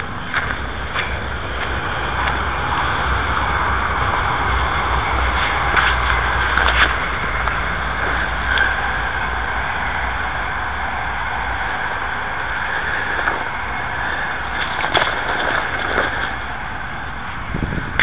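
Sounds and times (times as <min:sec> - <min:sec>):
low rumble: 0:00.0 - 0:18.0
road traffic rushing: 0:00.0 - 0:18.0.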